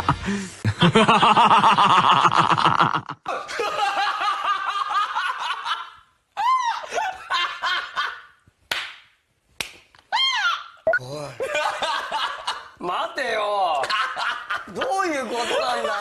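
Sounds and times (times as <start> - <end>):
men laughing hard: 0.0 - 8.4.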